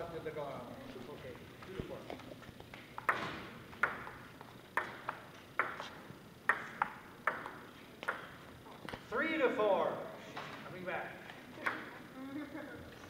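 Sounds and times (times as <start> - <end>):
ping pong ball clicking off paddles: 2.7 - 9.0, 11.6 - 11.9
ball bouncing on table: 3.0 - 8.4.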